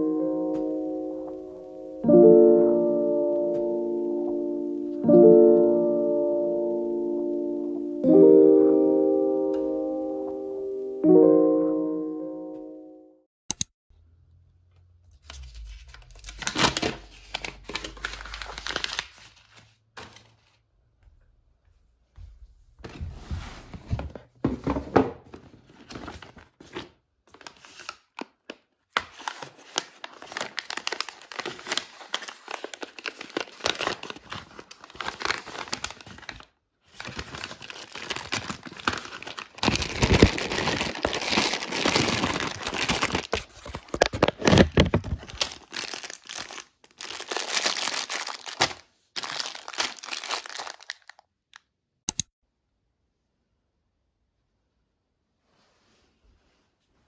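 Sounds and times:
paper crinkling and tearing: 0:15.2 - 0:20.6, 0:25.7 - 0:51.2.

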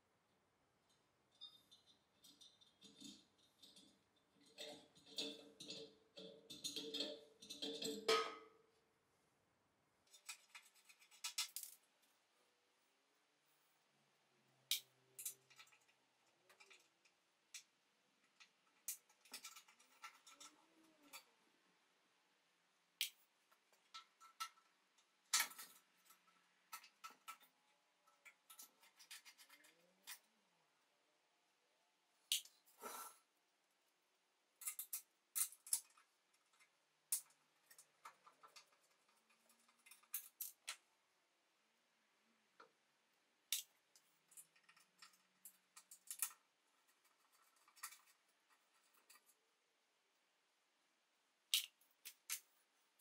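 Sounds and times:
faint metal clicks and scrapes: 0:00.8 - 0:08.5, 0:10.0 - 0:12.2, 0:14.7 - 0:21.4, 0:23.0 - 0:30.3, 0:34.6 - 0:40.9, 0:43.5 - 0:49.5.

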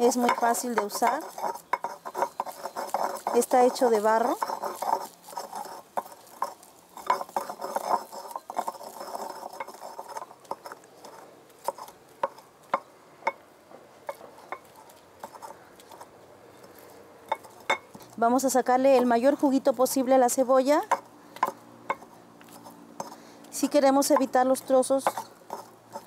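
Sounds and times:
stone pestle scraping: 0:00.0 - 0:13.4, 0:14.0 - 0:26.0
stone knocking clay bowl: 0:00.1 - 0:03.5.

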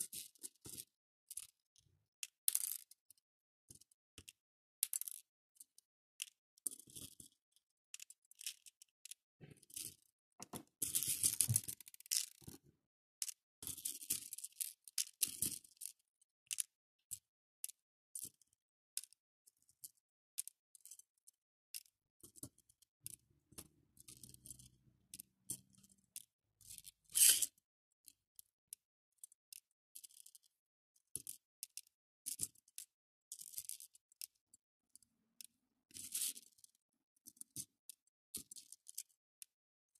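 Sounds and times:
beads clicking and rattling: 0:07.9 - 0:12.5, 0:22.3 - 0:27.5, 0:33.3 - 0:34.4.

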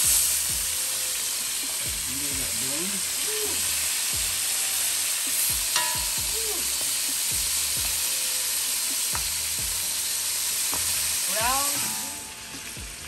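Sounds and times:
meat sizzling in hot oil: 0:00.0 - 0:13.0
metallic clink: 0:05.8 - 0:06.3.

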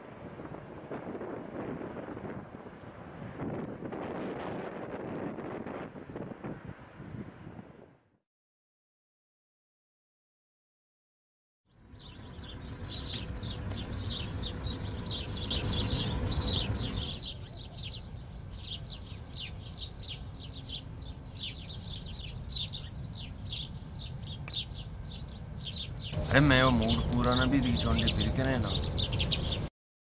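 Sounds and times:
small birds chirping: 0:11.7 - 0:29.7
low outdoor rumble: 0:11.8 - 0:29.7.

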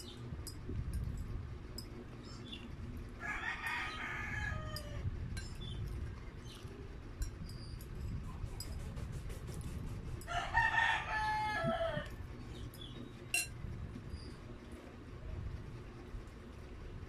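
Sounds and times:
rooster crowing: 0:03.2 - 0:05.0, 0:10.3 - 0:12.1
fork clinking in glass bowl: 0:13.3 - 0:13.6.

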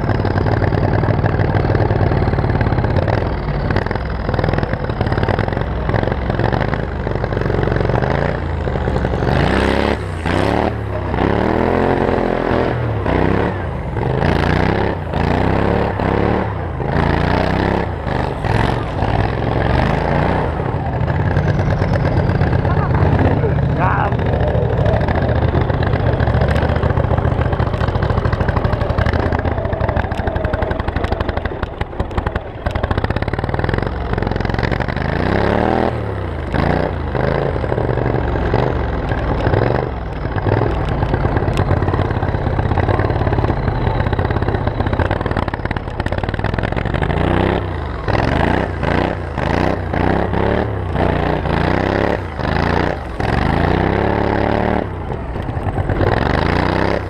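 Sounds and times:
lawn mower engine revving: 0:00.0 - 0:57.0.

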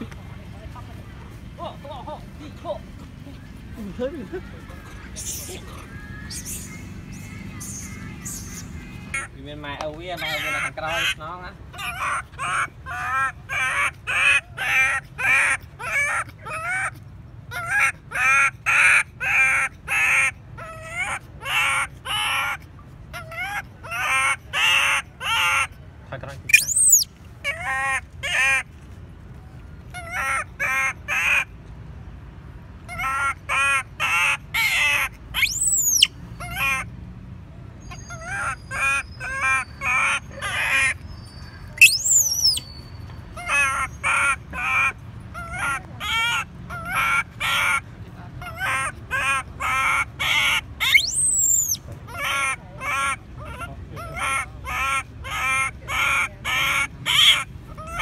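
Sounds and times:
baby monkey crying calls: 0:04.3 - 0:09.4, 0:10.1 - 0:25.8, 0:26.5 - 0:28.7, 0:29.9 - 0:31.5, 0:32.8 - 0:36.9, 0:37.8 - 0:58.0
monkey high shriek: 0:05.2 - 0:09.3, 0:26.5 - 0:27.6, 0:34.0 - 0:36.8, 0:41.6 - 0:42.8, 0:48.6 - 0:53.6.

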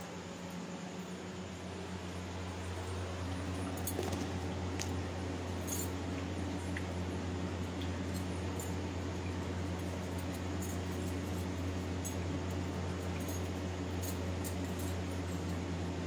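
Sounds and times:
low electrical hum: 0:00.0 - 0:16.0
faint light clinks: 0:02.4 - 0:07.0, 0:07.6 - 0:15.7.

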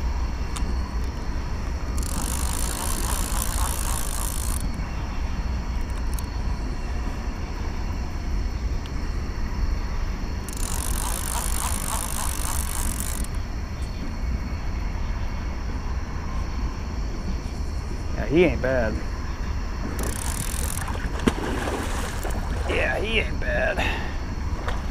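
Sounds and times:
steady low rumble: 0:00.0 - 0:02.0, 0:03.0 - 0:10.5
fishing reel gears whirring: 0:00.4 - 0:05.0, 0:05.7 - 0:06.6, 0:10.4 - 0:13.6, 0:19.9 - 0:21.1, 0:22.1 - 0:22.4.

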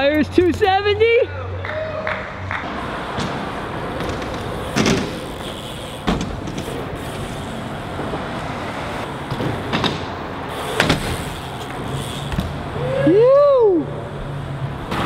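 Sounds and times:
highway traffic noise: 0:00.0 - 0:15.0
bikes landing on wooden ramps: 0:02.8 - 0:08.3, 0:09.1 - 0:12.8.

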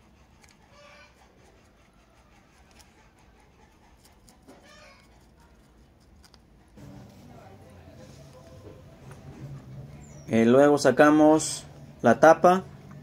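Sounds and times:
low steady rumble: 0:05.8 - 0:13.0.

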